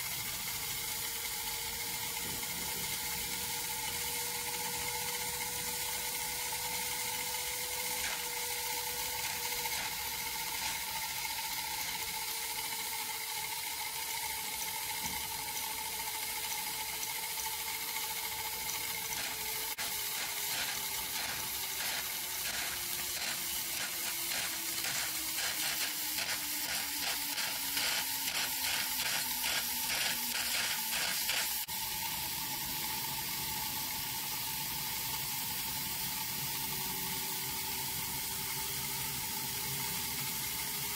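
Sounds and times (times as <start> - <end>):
steam hissing with thin whine: 0.0 - 40.9
rapid pulsing sputter: 7.0 - 13.6, 17.3 - 31.7.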